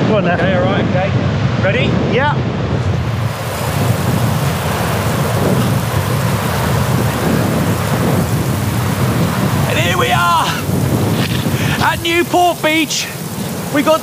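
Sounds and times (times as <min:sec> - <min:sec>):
heavy rain: 0:00.0 - 0:14.0
thunder rumbling: 0:00.7 - 0:14.0
man shouting: 0:09.7 - 0:10.7, 0:11.8 - 0:13.2.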